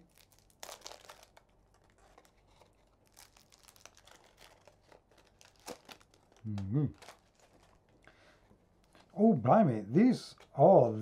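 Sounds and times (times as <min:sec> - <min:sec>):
plastic wrapper crinkling: 0:00.0 - 0:08.1.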